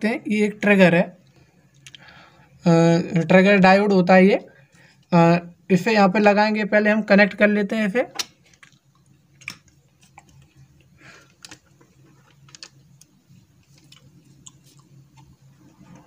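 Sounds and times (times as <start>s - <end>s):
faint low hum: 0.0s - 16.0s
faint clicks and rustling: 8.2s - 16.0s.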